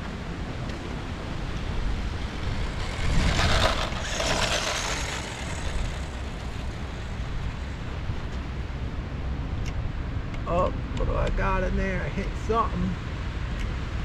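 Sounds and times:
wind rumbling on microphone: 0:00.0 - 0:14.0
rc truck motor and tyres on dirt: 0:00.6 - 0:08.6.

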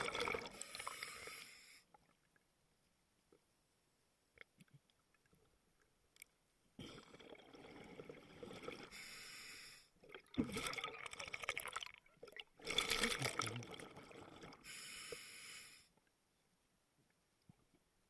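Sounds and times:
exhaled bubbles underwater: 0:00.0 - 0:00.9, 0:10.0 - 0:14.6
regulator inhale hiss: 0:00.6 - 0:01.9, 0:08.9 - 0:10.0, 0:14.7 - 0:15.9.

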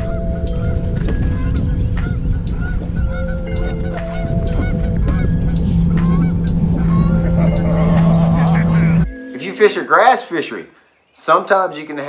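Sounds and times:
wind buffeting microphone: 0:00.0 - 0:09.1
steady low hum: 0:00.0 - 0:09.2
short pitched calls: 0:00.0 - 0:10.0.

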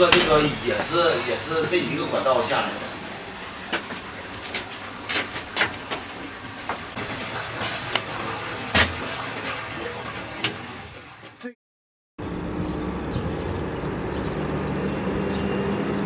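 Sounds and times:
machinery running with high whine: 0:00.0 - 0:11.6.

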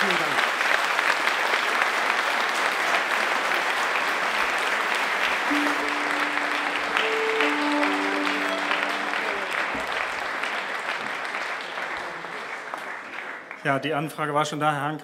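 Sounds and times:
audience applauding: 0:00.0 - 0:13.8
held musical notes: 0:05.5 - 0:10.7.

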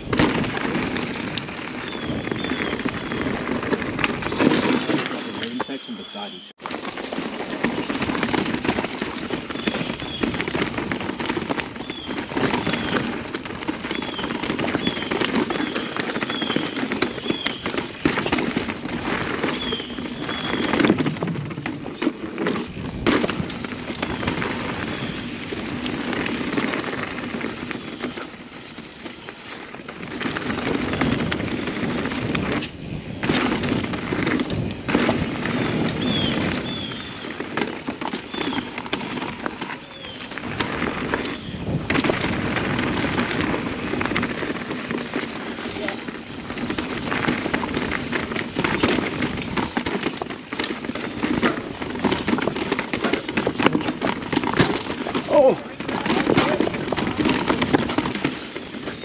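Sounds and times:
bike tyres rattling over rocks: 0:00.0 - 0:59.0
bike chain slap: 0:00.1 - 0:01.6, 0:10.8 - 0:14.1, 0:23.1 - 0:24.9, 0:27.6 - 0:29.6, 0:36.2 - 0:37.4, 0:38.2 - 0:40.5.

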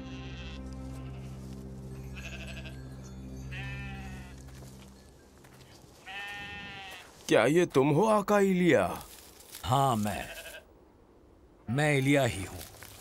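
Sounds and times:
livestock bleating: 0:00.0 - 0:02.8, 0:03.5 - 0:04.5, 0:06.0 - 0:07.1, 0:10.0 - 0:10.6
soft background music chord: 0:00.0 - 0:06.8.

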